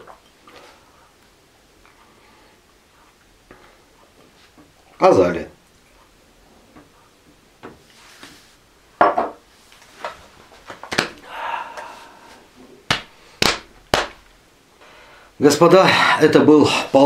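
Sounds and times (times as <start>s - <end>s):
glassware knocking on a table: 9.0s - 9.4s
throaty reaction sounds: 11.2s - 12.9s.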